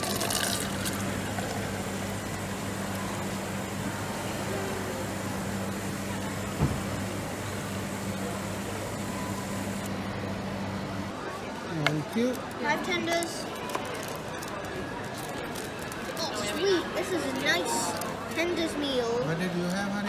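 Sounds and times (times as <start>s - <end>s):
soda pouring and fizzing: 0.0s - 4.3s
dispenser hum: 0.0s - 12.9s
short knock: 6.6s - 6.9s.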